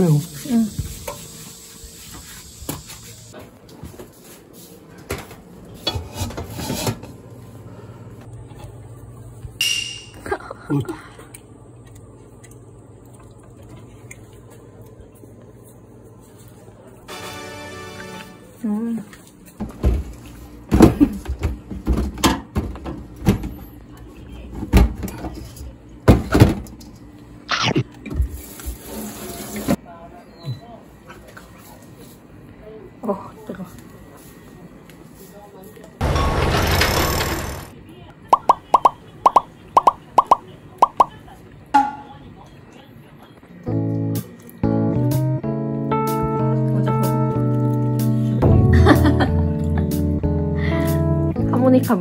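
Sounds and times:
utensil scraping cookware: 0:05.8 - 0:07.1
objects knocking and clunking: 0:20.7 - 0:23.6.

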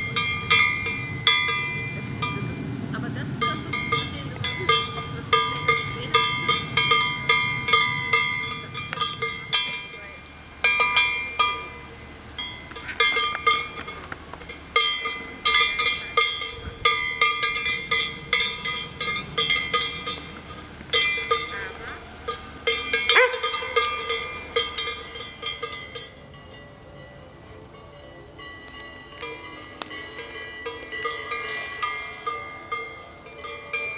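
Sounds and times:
cowbells clanking: 0:00.0 - 0:33.9.

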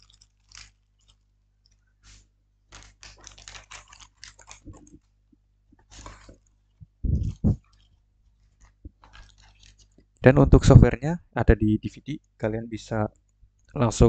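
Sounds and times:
plastic bag crinkling: 0:00.0 - 0:05.2, 0:05.8 - 0:10.2.

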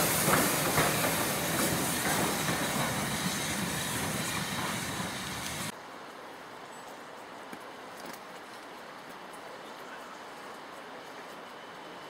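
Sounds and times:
steam locomotive exhaust: 0:00.0 - 0:05.7
train wheels on rails: 0:00.0 - 0:05.8.

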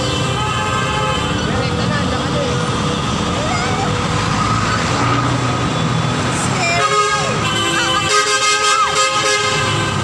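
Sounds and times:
vehicle horn honking: 0:00.0 - 0:01.7, 0:06.6 - 0:10.0
steady road noise: 0:00.0 - 0:10.0.

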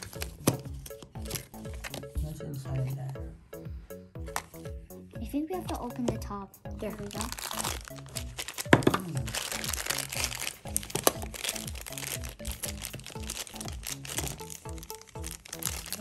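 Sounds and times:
background music: 0:00.0 - 0:16.0
wrapper rustling and crackling: 0:07.0 - 0:16.0.

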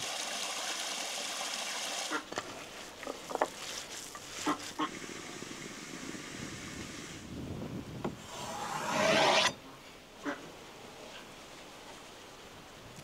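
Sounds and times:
steady hiss: 0:02.4 - 0:07.4.

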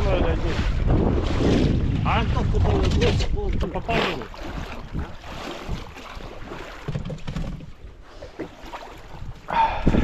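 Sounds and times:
wind buffeting microphone: 0:00.0 - 0:06.5, 0:09.0 - 0:10.0
water splashing around boat: 0:00.0 - 0:10.0.

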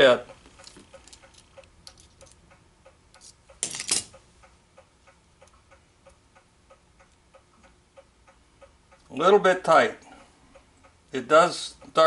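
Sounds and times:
faint steady ticking: 0:00.0 - 0:12.0.

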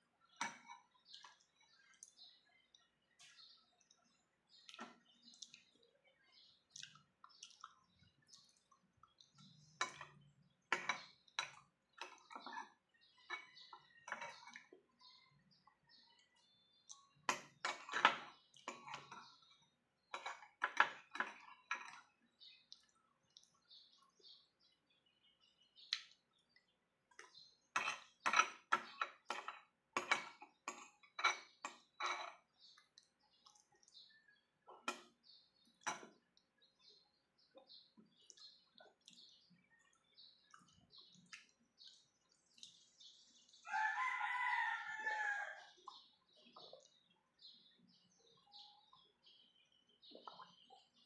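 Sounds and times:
spoon clinking on ceramic bowl: 0:00.4 - 0:00.9, 0:09.8 - 0:14.7, 0:17.3 - 0:19.2, 0:27.7 - 0:32.4.

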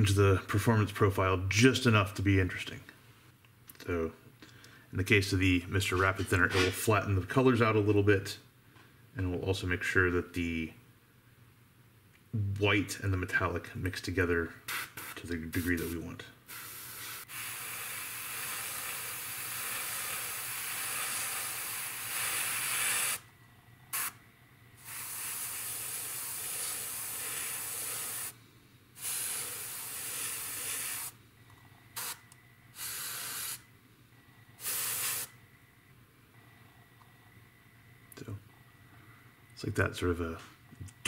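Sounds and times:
airbrush spraying hiss: 0:14.7 - 0:23.3, 0:23.9 - 0:24.2, 0:24.8 - 0:28.4, 0:29.0 - 0:31.2, 0:32.0 - 0:33.6, 0:34.6 - 0:35.4.

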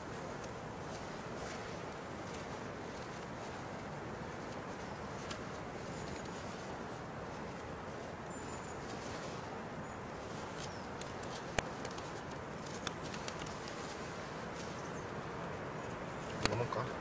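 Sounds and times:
steady background hiss: 0:00.0 - 0:17.0.

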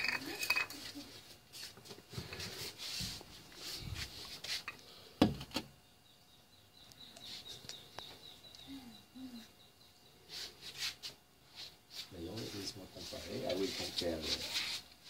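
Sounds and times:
bird chirping: 0:05.8 - 0:10.5.

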